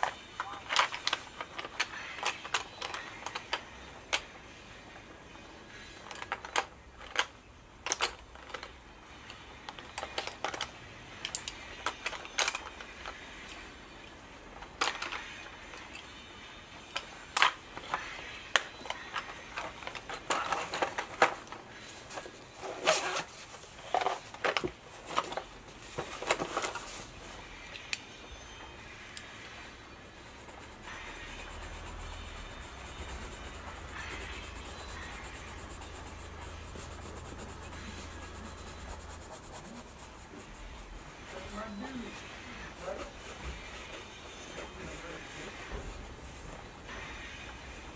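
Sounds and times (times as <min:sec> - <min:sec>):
coloured pencils clicking and rattling: 0:00.0 - 0:47.9
handling rustles: 0:18.8 - 0:27.4.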